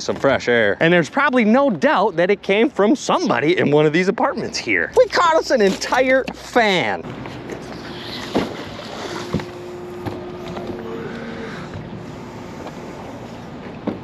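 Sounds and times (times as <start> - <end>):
water noise: 0.0 - 14.0
wind: 0.0 - 14.0
faint steady drone: 6.6 - 14.0.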